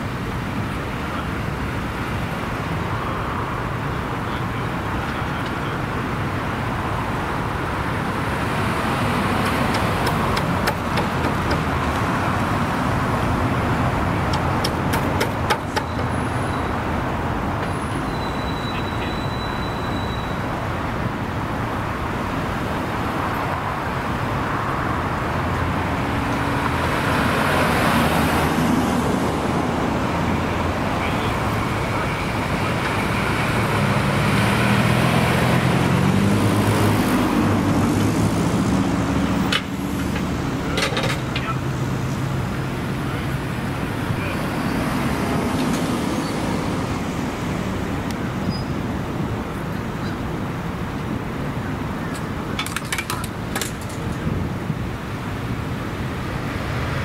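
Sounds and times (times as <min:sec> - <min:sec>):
road traffic: 0:00.0 - 0:57.0
vehicle passing close by: 0:24.4 - 0:40.6.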